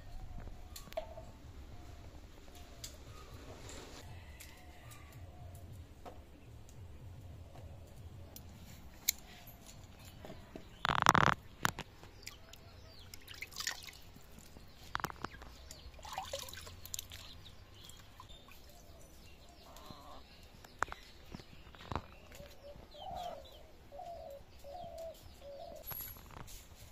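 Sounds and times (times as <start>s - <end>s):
water splashing and dripping: 11.6s - 19.0s.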